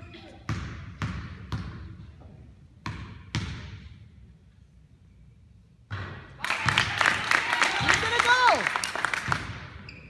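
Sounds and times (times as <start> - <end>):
basketball bouncing on hardwood floor: 0.5 - 1.9, 2.8 - 3.8.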